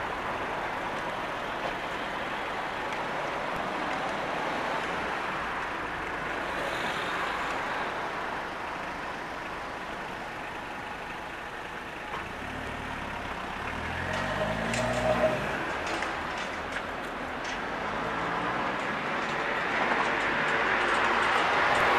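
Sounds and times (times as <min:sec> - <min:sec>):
street traffic noise: 0:00.0 - 0:21.9
heavy vehicle engine pulling away: 0:12.2 - 0:16.3.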